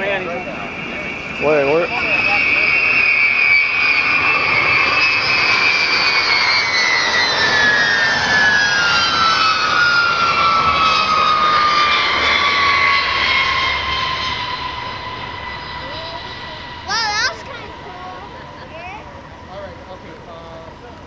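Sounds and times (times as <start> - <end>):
jet engines roaring: 0.0 - 21.0
high whine falling in pitch: 12.2 - 18.9.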